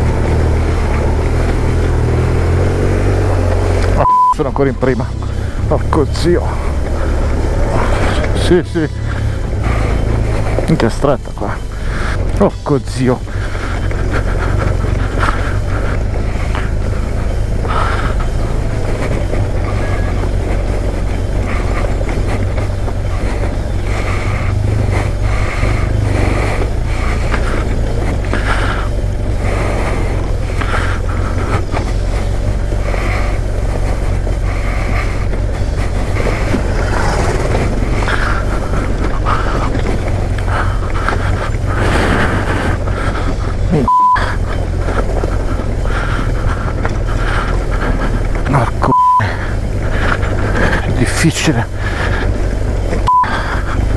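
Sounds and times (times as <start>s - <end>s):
gravel crunching under tyres: 0.0s - 53.9s
motorcycle engine running: 0.0s - 53.9s
censor bleep: 4.0s - 4.5s, 43.8s - 44.3s, 48.9s - 49.3s.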